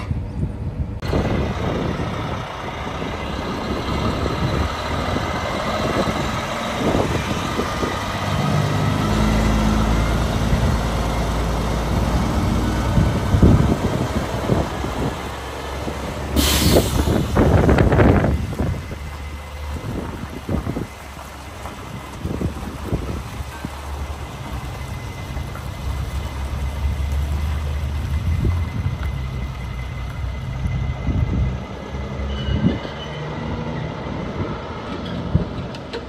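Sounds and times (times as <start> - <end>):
truck diesel engine rumble: 0.0 - 36.0
air brake hiss: 16.4 - 17.5.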